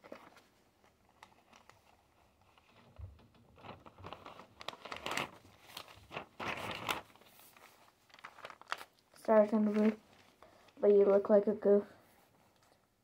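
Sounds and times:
paper pages rustling: 0:00.0 - 0:11.3.

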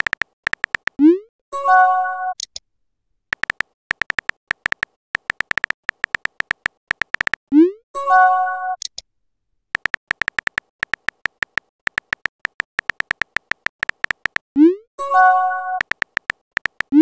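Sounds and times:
keyboard typing clicks: 0:00.0 - 0:01.0, 0:03.3 - 0:07.4, 0:09.8 - 0:14.5, 0:15.2 - 0:17.0.

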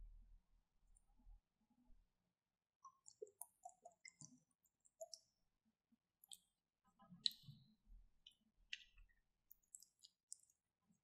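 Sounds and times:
liquid pouring with wet pops: 0:02.8 - 0:05.4, 0:06.2 - 0:11.0
spatula stirring squelching slime: 0:02.8 - 0:11.0.

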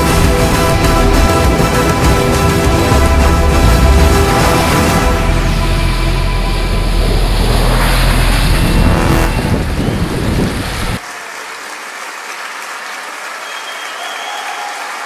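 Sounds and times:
off-road vehicle engine: 0:00.0 - 0:11.0.

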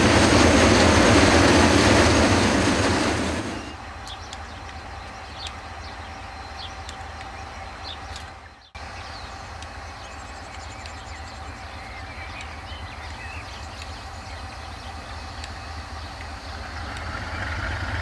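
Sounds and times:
distant diesel locomotives running: 0:00.0 - 0:18.0
birds chirping faintly: 0:03.5 - 0:17.8.

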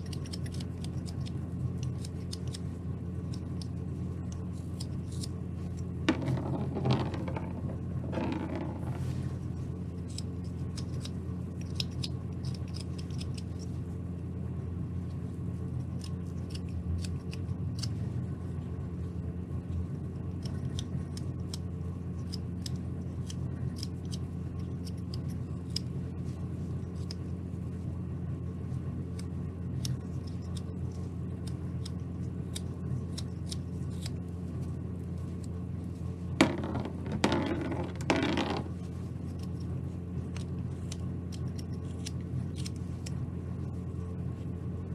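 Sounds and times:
steady low hum: 0:00.0 - 0:44.9
knife scraping wood: 0:03.3 - 0:13.7
scraping and rustling: 0:05.1 - 0:09.8.

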